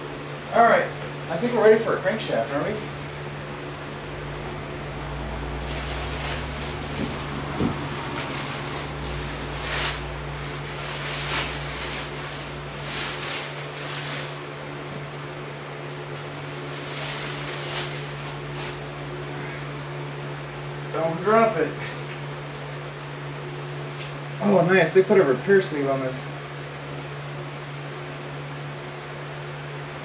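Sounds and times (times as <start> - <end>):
steady mechanical hum: 0.0 - 30.0
plastic bag rustling: 5.4 - 14.8, 16.0 - 19.0.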